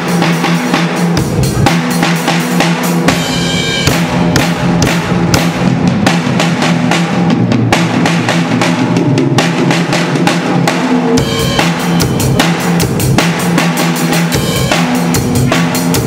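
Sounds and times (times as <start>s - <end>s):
drum kit playing fast rhythm: 0.0s - 16.0s.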